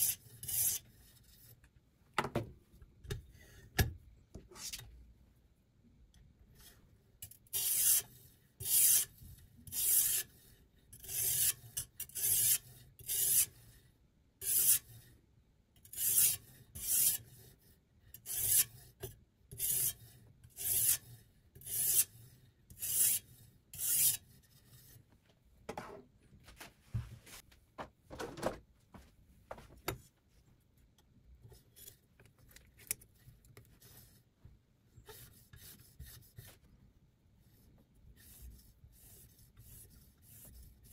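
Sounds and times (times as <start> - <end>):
sharpening stone scraping knife: 0.0 - 0.9, 7.2 - 9.1, 9.7 - 10.4, 11.0 - 13.5, 14.4 - 15.0, 15.8 - 17.5, 18.2 - 18.9, 19.5 - 25.0.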